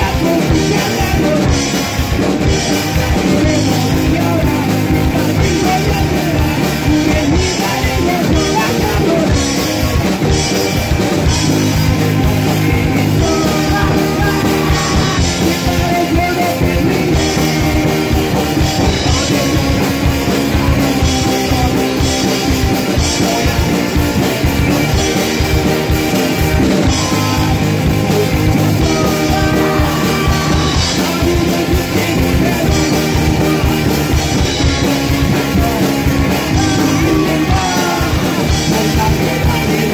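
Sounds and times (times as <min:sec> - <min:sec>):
person singing: 0:00.0 - 0:39.9
punk rock band playing: 0:00.0 - 0:39.9.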